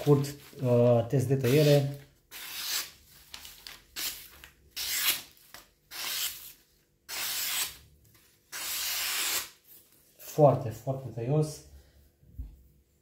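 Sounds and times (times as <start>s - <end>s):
knife slicing paper: 1.4s - 7.8s, 8.5s - 9.6s.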